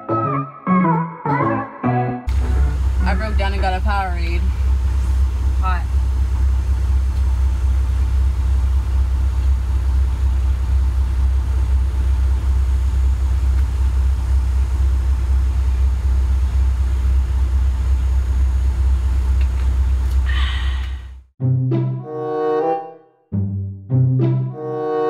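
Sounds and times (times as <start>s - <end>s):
diesel truck engine rumbling: 2.3s - 21.3s.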